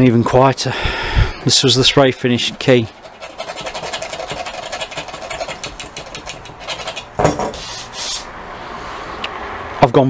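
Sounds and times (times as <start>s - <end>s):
key scraping paint: 2.4s - 8.3s.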